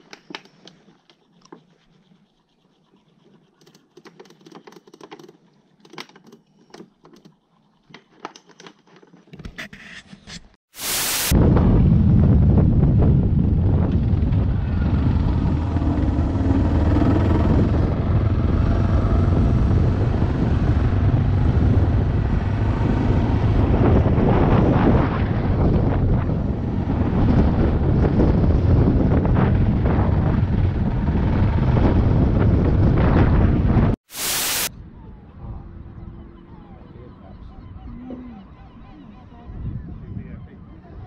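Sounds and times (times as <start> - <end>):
wind on microphone: 11.3 - 34.0, 37.4 - 41.0
motorcycle engine running: 12.5 - 24.4.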